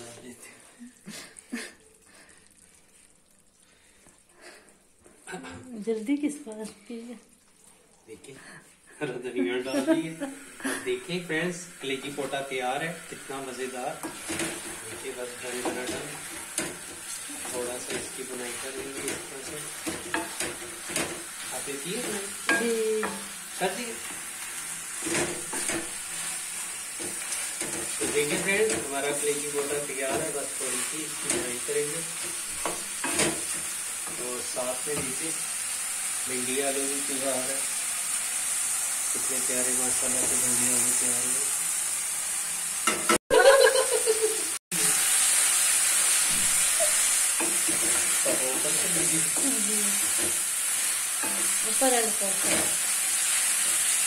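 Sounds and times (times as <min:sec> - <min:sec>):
frying sizzle: 0:00.0 - 0:54.0
spatula scraping pan: 0:11.8 - 0:35.8, 0:45.9 - 0:54.0.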